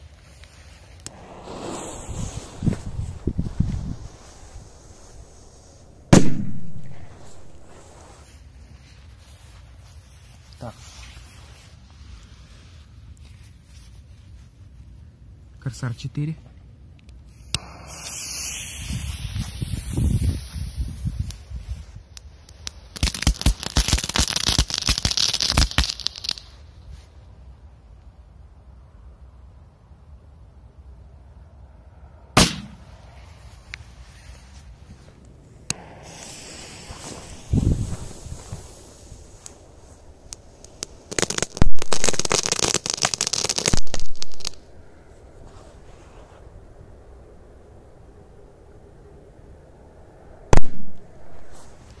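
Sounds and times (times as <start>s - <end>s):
firecracker crackling and hissing: 0.0s - 14.9s, 17.1s - 27.6s, 32.4s - 48.2s, 50.5s - 52.0s
firecracker pops: 1.0s - 8.2s, 17.5s - 21.4s, 22.5s - 26.5s, 32.4s - 32.9s, 35.7s - 44.6s, 50.5s - 52.0s.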